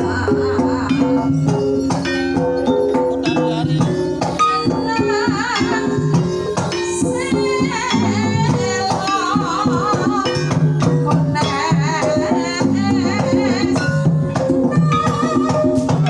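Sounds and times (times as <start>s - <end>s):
drum strokes: 0.0s - 16.0s
metallophones struck: 0.0s - 16.0s
woman singing ornamented lines: 0.0s - 16.0s.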